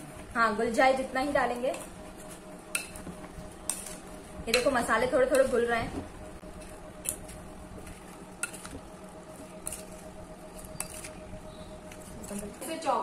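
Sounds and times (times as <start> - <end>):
spoon squishing mango: 6.4 - 12.5.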